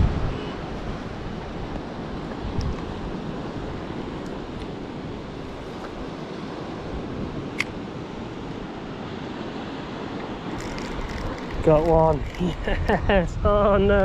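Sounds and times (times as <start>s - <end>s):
sea surf: 0.0s - 14.0s
wind noise on microphone: 0.0s - 14.0s
sharp click: 7.5s - 7.8s.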